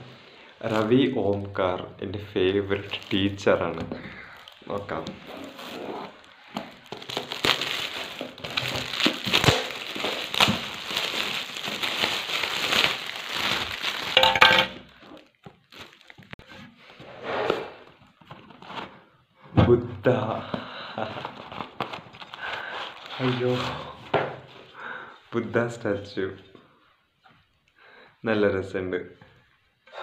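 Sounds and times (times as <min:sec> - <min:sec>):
foil gift wrap crinkling and tearing: 0:02.5 - 0:16.4, 0:20.9 - 0:24.8.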